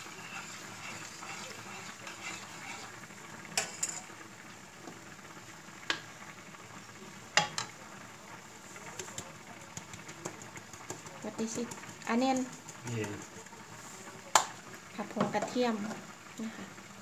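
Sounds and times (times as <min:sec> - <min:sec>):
meat sizzling in a skillet: 0:00.0 - 0:17.0
utensils clinking on pans: 0:03.6 - 0:04.1.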